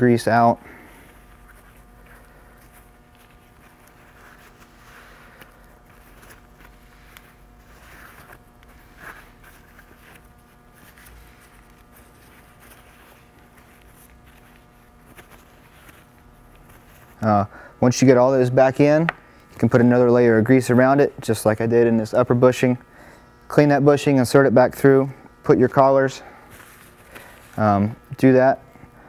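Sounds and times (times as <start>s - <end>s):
paper towel rubbing: 0.0s - 17.3s, 25.6s - 27.8s
steady low hum: 0.0s - 29.0s.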